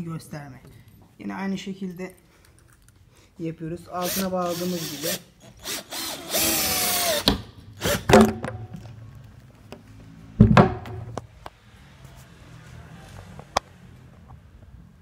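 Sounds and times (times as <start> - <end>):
heavy wooden thunk: 8.1 - 8.8, 10.4 - 11.2
wooden knocks and thuds: 8.1 - 8.8, 10.4 - 11.2.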